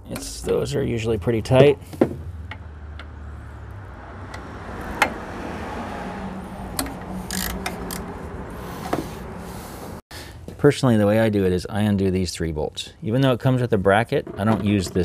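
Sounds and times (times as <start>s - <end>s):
metallic clicks and taps of tools: 6.7s - 8.1s.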